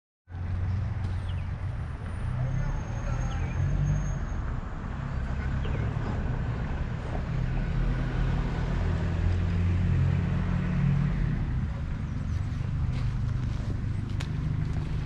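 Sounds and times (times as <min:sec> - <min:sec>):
low engine hum: 0:04.8 - 0:15.0.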